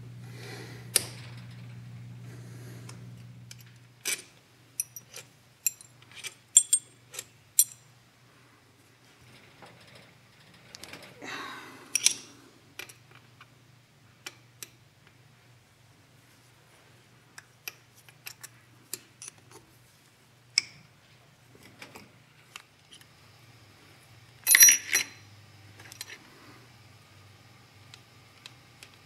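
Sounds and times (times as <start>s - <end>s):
metallic clicks of tools and bolts: 3.5s - 7.8s, 11.9s - 13.2s, 17.4s - 19.6s, 24.4s - 25.2s
ringing clatter of metal parts: 4.0s - 7.8s, 24.5s - 25.2s.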